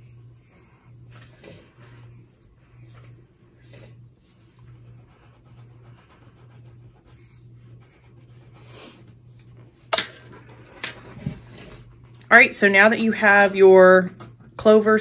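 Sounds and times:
low steady hum: 0:00.0 - 0:15.0
pencil scratching on paper: 0:04.2 - 0:09.1.

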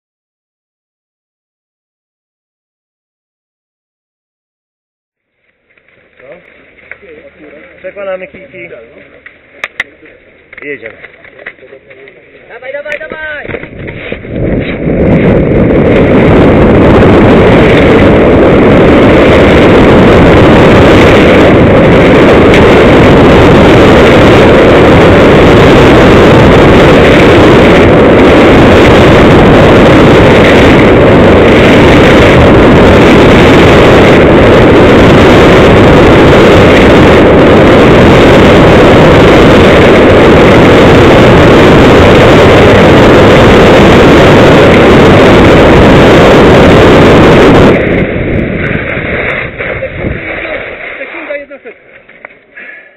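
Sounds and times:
wind buffeting microphone: 0:05.6 - 0:52.6
skis hissing on snow: 0:50.2 - 0:51.6.

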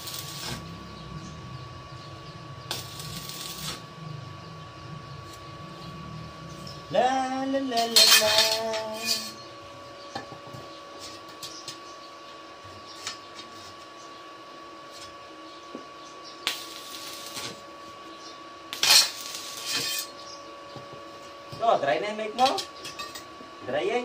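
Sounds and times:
arc welding crackle: 0:00.0 - 0:12.0, 0:14.8 - 0:24.0
faint steady whine: 0:00.0 - 0:24.0.

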